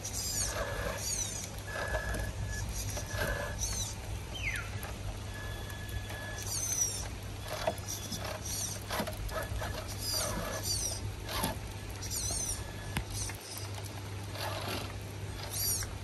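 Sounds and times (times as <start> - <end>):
high chirping bird calls: 0.0 - 8.9, 9.8 - 11.1, 12.0 - 13.8
small electric motor and gears whirring: 0.0 - 16.0.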